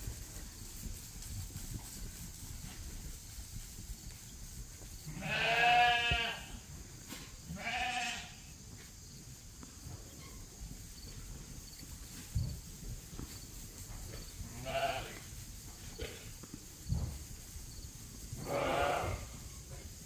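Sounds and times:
sheep bleating: 5.1s - 6.6s, 7.5s - 8.4s, 18.4s - 19.3s.

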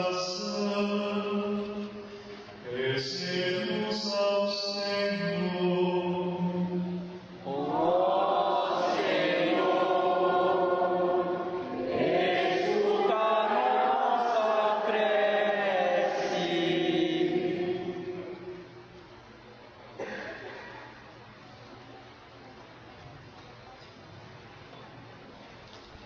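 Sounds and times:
liturgical chant: 0.0s - 19.0s.

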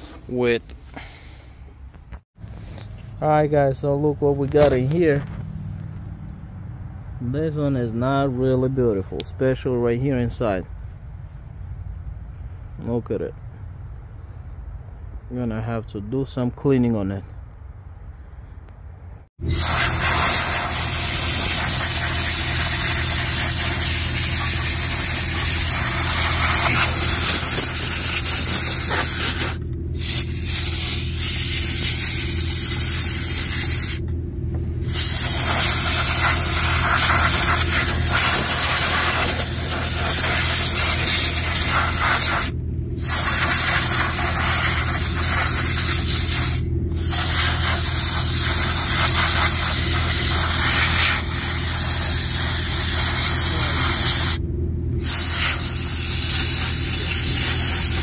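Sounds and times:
steady low hum: 17.2s - 58.0s
spray wand hissing: 19.5s - 34.0s, 34.9s - 54.4s, 55.0s - 58.0s.

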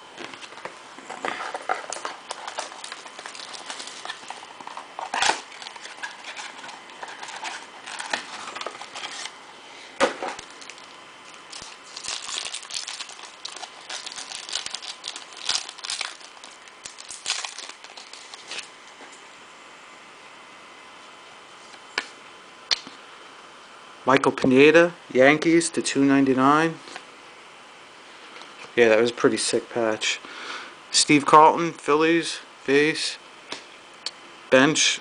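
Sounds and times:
foil wrapper crinkling and tearing: 1.5s - 9.3s, 10.4s - 18.7s
sharp snaps: 22.7s - 23.0s.

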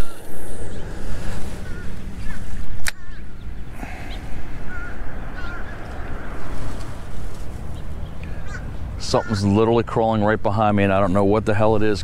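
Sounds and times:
wind rumble on microphone: 0.0s - 9.0s
small birds chirping: 0.0s - 9.7s.

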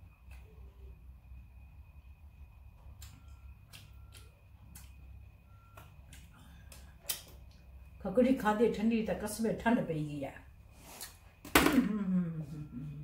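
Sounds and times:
soft eating sounds: 0.0s - 8.0s
faint hum with high whine: 0.0s - 13.0s.

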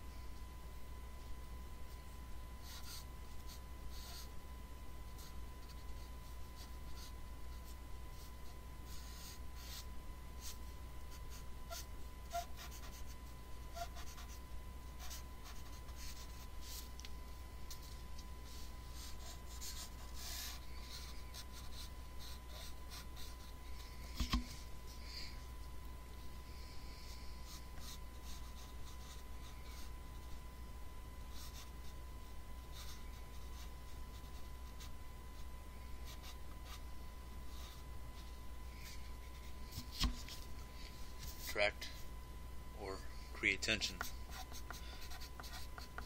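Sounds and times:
pencil scratching on paper: 2.6s - 4.3s, 5.2s - 14.4s, 15.0s - 16.9s, 18.5s - 24.4s, 26.9s - 29.9s, 31.3s - 31.7s, 32.7s - 34.9s, 43.8s - 46.0s.

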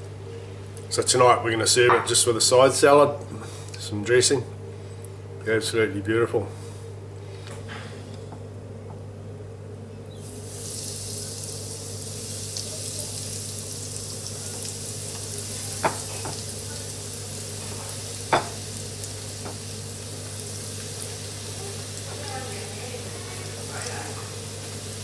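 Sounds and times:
steady low hum: 0.0s - 25.0s
food sizzling in deep fryer: 10.1s - 25.0s.

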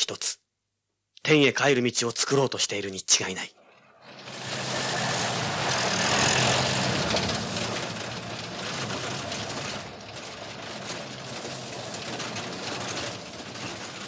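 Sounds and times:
road noise: 3.6s - 14.0s
car engine running: 4.1s - 13.8s.

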